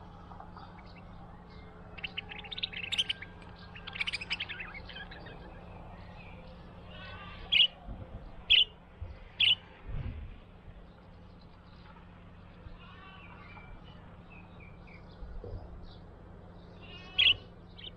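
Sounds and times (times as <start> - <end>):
budgerigar chirping: 2.0 - 5.2, 8.5 - 8.7, 16.9 - 17.9
budgerigar short loud calls: 7.0 - 7.8, 16.8 - 17.9.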